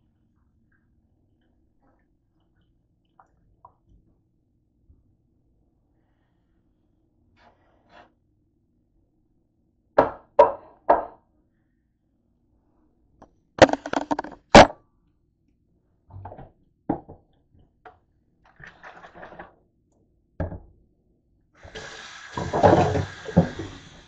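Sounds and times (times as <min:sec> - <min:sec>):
kitchen items clattering in sink: 0:13.6 - 0:14.7, 0:18.5 - 0:19.5, 0:21.7 - 0:23.9
water running into steel sink: 0:21.6 - 0:24.0.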